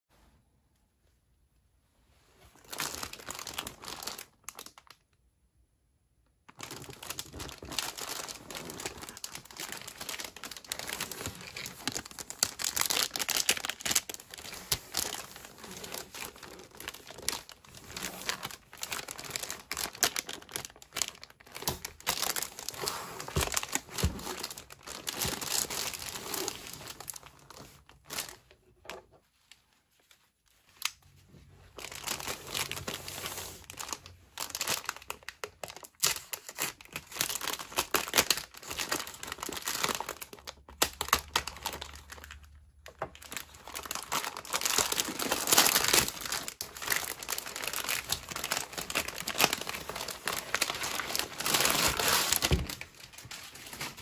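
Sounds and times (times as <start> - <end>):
plastic shrink-wrap crinkling: 2.5 - 5.1, 6.4 - 54.0.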